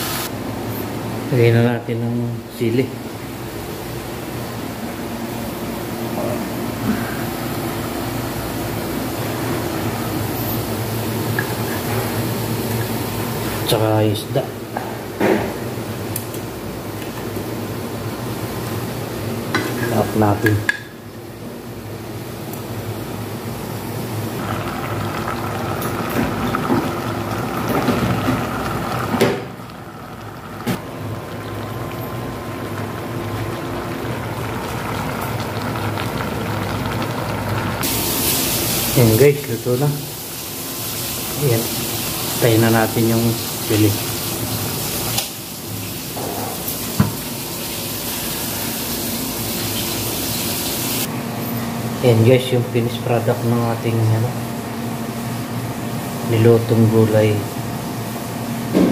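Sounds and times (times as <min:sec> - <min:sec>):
gas stove hissing: 0:00.0 - 0:54.0
fish frying in oil: 0:24.3 - 0:51.1.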